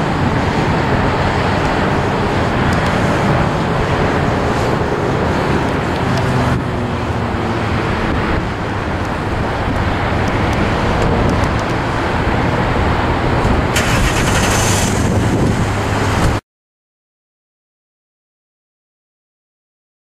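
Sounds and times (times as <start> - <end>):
jet engines roaring: 0.0 - 16.4.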